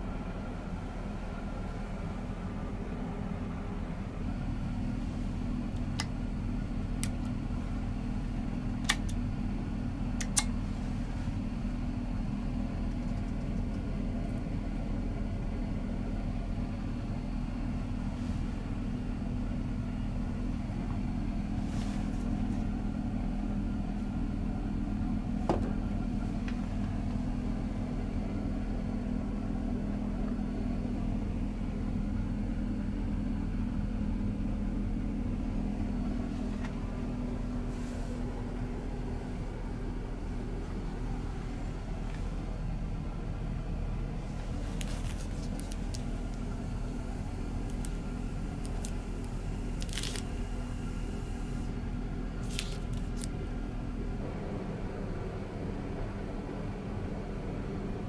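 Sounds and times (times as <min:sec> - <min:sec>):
train carriage rumble and hum: 0:00.0 - 0:58.0.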